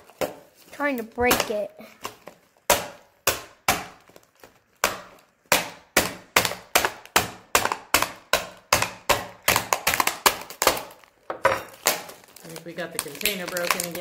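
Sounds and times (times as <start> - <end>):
hard candy smashing: 0.0 - 14.0.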